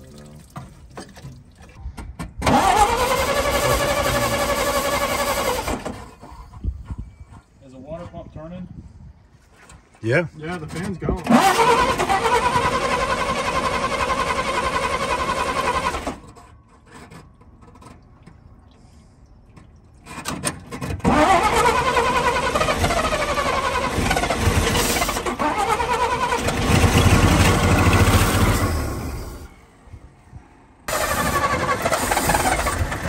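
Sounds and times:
truck engine running: 0:02.4 - 0:06.0, 0:21.1 - 0:29.5, 0:30.9 - 0:33.0
engine cranking: 0:02.4 - 0:06.7, 0:10.5 - 0:18.3, 0:20.0 - 0:29.5, 0:30.9 - 0:33.0.

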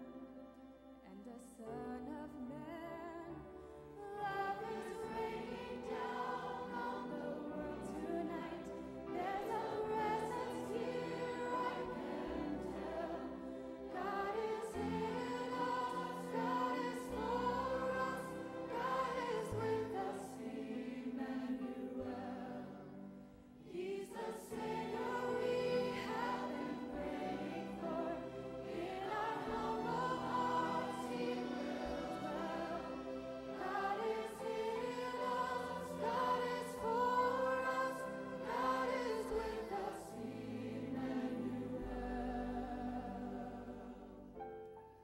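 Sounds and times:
choir: 0:00.0 - 0:45.0
woman singing: 0:01.1 - 0:05.8.

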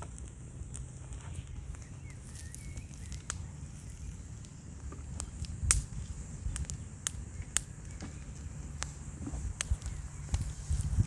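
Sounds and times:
wood fire crackling and popping: 0:00.0 - 0:11.0.

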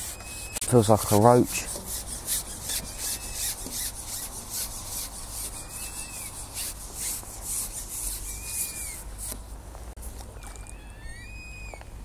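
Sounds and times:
fishing pole rubbing through hands: 0:00.0 - 0:09.4.

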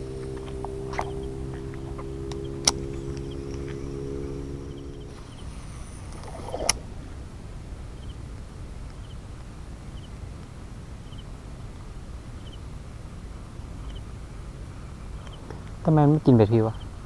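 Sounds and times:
fishing reel spool whine: 0:00.0 - 0:08.2
low outdoor noise: 0:00.0 - 0:17.0
reel click: 0:06.1 - 0:06.8.

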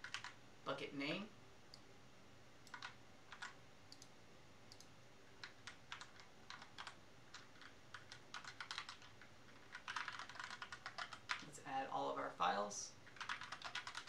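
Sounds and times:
keyboard typing: 0:00.0 - 0:00.4, 0:02.6 - 0:04.1, 0:04.7 - 0:11.5, 0:13.1 - 0:14.0.

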